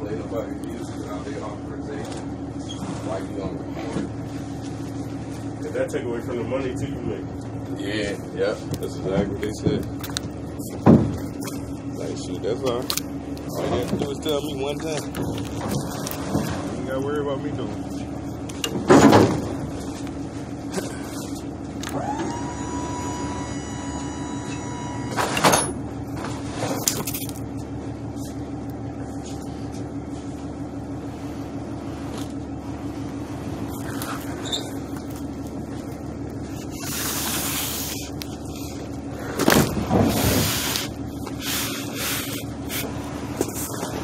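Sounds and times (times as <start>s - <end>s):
steady low hum: 0.0s - 44.0s
boxes scraping across truck bed: 14.8s - 17.0s, 24.8s - 27.4s, 31.1s - 35.8s, 36.4s - 44.0s.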